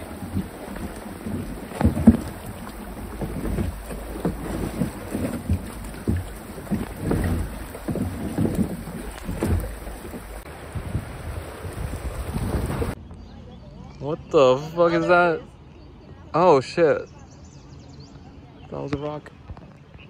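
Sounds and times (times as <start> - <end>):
kayak hull bumping on rocks: 0.0 - 13.0
river water running over stones: 0.0 - 13.0
wind on microphone: 0.0 - 13.0.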